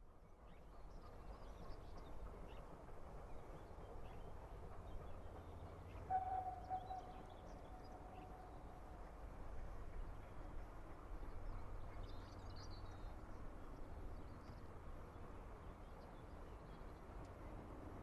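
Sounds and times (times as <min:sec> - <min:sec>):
faint birdsong: 0:00.4 - 0:09.3
distant steam locomotive whistle: 0:06.0 - 0:08.5.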